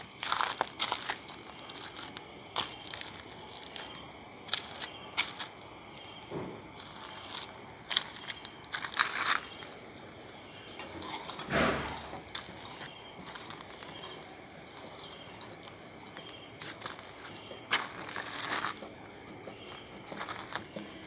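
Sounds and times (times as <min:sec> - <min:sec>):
scuff: 0:16.2 - 0:18.9.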